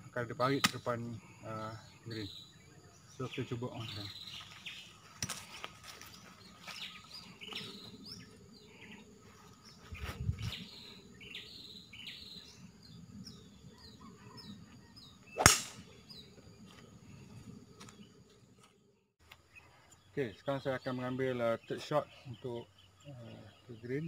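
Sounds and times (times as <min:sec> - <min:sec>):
small birds chirping: 0:00.0 - 0:24.0
golf club striking ball: 0:15.4 - 0:16.0.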